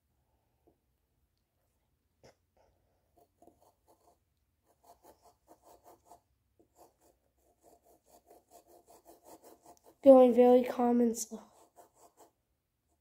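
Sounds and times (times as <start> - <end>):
knife sawing through strawberry: 7.6 - 10.1.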